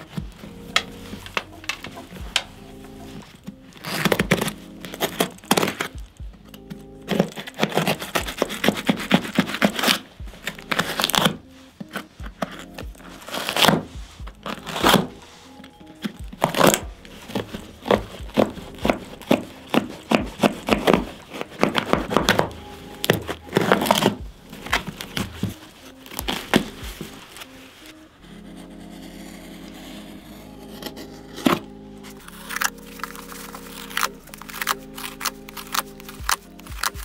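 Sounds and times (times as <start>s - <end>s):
background music: 0.0s - 37.0s
blade scratching through leather: 7.1s - 15.2s, 28.3s - 37.0s.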